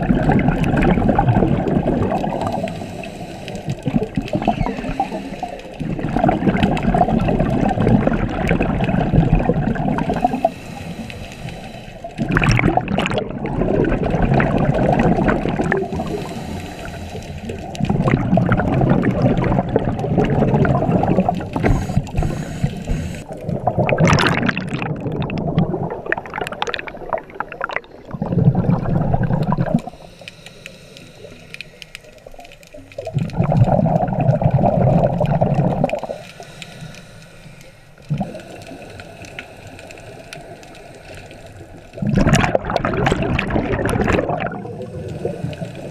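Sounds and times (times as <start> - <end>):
diver exhaling bubbles underwater: 0.0 - 2.8, 3.7 - 10.6, 12.1 - 16.5, 17.4 - 30.0, 33.0 - 36.2, 38.1 - 38.8, 42.0 - 45.9.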